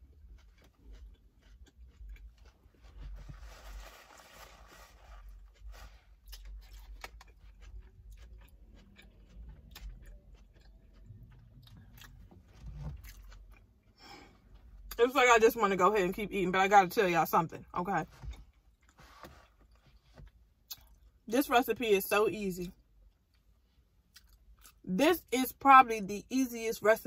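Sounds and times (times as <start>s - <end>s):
person chewing crunchy food: 0.0s - 14.9s, 18.2s - 21.2s, 23.1s - 24.8s.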